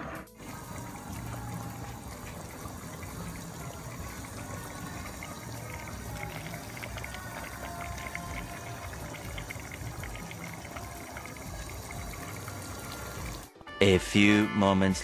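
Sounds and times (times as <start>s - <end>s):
faint music: 0.0s - 15.0s
liquid boiling in pots: 0.4s - 13.5s.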